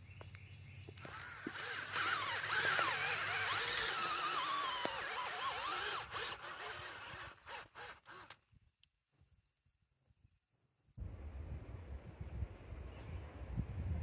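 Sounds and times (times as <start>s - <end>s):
cordless drill whining: 1.0s - 8.4s.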